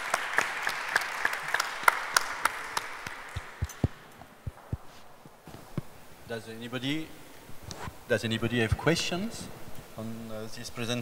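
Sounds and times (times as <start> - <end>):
audience applause: 0.0 - 4.1.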